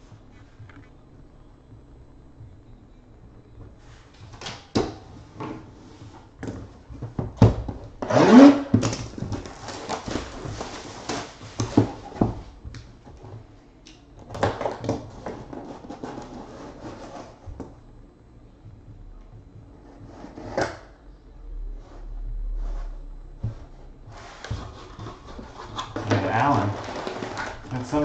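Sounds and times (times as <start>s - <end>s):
packaging knocks and rustling: 6.4s - 12.5s, 24.4s - 28.0s.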